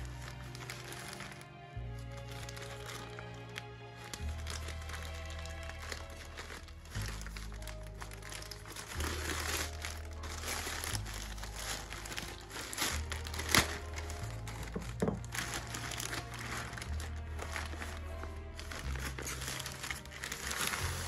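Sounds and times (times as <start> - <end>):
background music: 0.0 - 21.0
plastic mailer bag crinkling: 0.0 - 21.0
scissors cutting plastic: 4.6 - 17.9.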